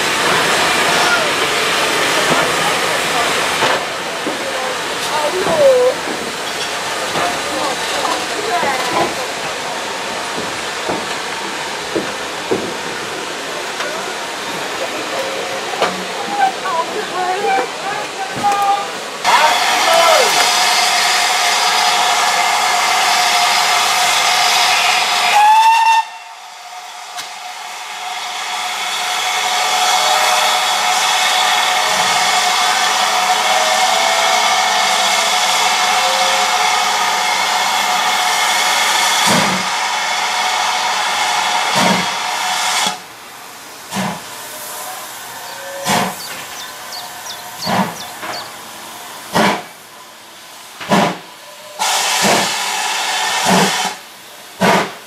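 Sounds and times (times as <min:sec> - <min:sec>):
steam hissing: 0:00.0 - 0:55.0
rising steam whistle: 0:19.3 - 0:43.0, 0:44.4 - 0:49.0, 0:51.3 - 0:54.4
steam locomotive exhaust chuffs: 0:19.4 - 0:55.0.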